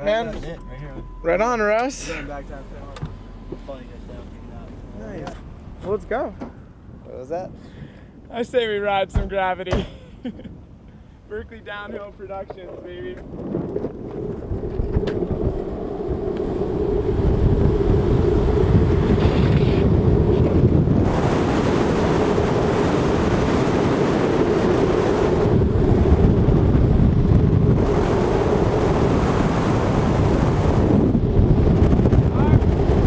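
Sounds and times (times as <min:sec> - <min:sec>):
wind rushing over microphone: 0:11.2 - 0:33.0
skateboard wheels roaring on asphalt: 0:13.0 - 0:33.0.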